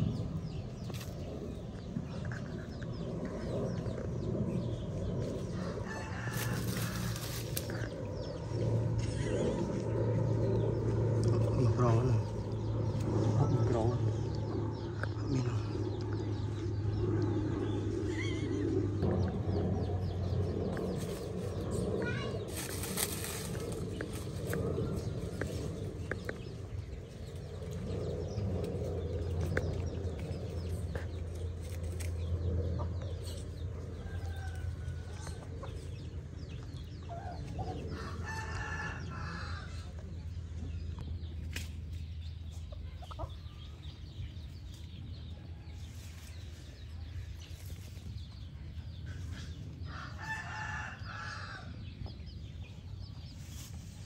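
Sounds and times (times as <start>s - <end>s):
steady low hum: 0.0s - 54.0s
rooster crowing: 5.6s - 7.4s, 38.0s - 39.8s, 49.9s - 51.7s.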